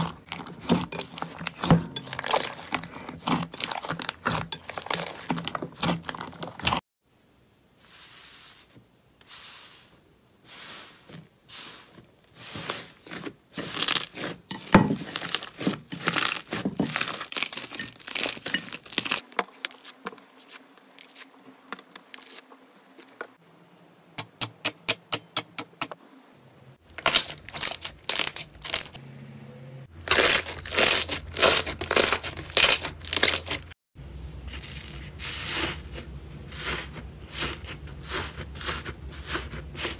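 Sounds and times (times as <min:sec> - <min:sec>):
slime crackling and popping: 0:13.0 - 0:14.4, 0:15.0 - 0:19.9.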